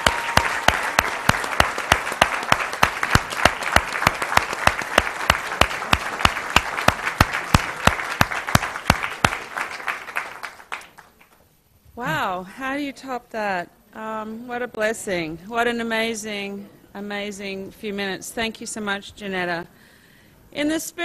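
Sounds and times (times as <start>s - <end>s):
audience applause: 0.0s - 11.4s
close hands clapping sharply: 0.0s - 11.4s.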